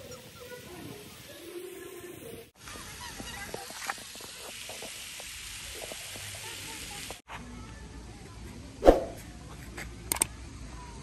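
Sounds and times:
outdoor background noise: 0.0 - 11.0.

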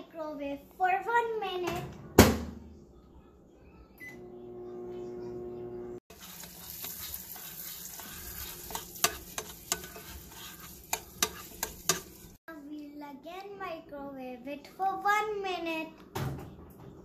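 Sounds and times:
microwave humming: 3.9 - 6.0
microwave beep: 4.0 - 5.9
spoon scraping glass bowl: 6.1 - 12.3.

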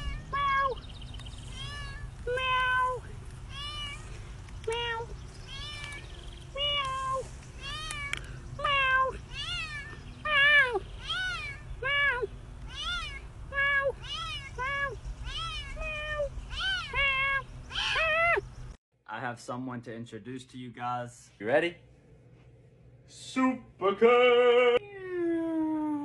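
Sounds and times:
cat meowing: 1.5 - 4.1, 4.7 - 18.4.

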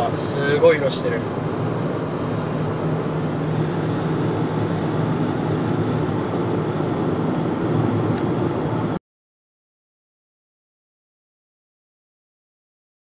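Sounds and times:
car engine and road rumble: 0.0 - 9.0.

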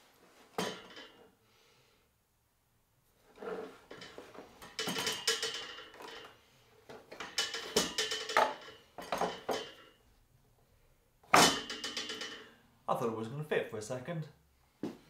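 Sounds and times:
metal plate scraping and clattering: 3.3 - 9.8.

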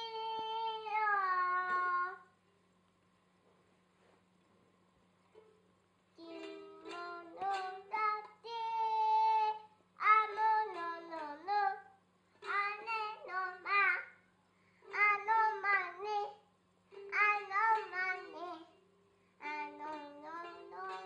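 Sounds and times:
toddler singing: 0.0 - 2.2, 6.2 - 14.2, 14.9 - 16.4, 17.0 - 18.8, 19.4 - 21.0.

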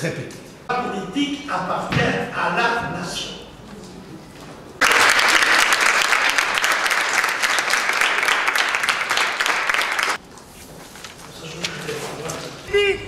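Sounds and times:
group applauding: 4.8 - 10.2.

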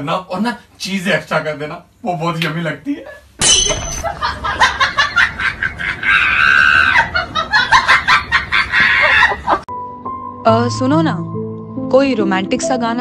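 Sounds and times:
shrill cackling laughter: 4.0 - 9.7
scream-like cry: 6.0 - 7.2.

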